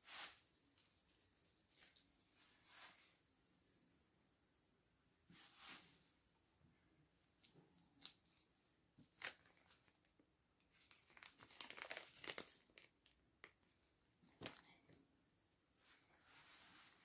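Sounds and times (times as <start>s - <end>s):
plastic bag crinkling: 9.0s - 10.0s, 10.7s - 13.6s.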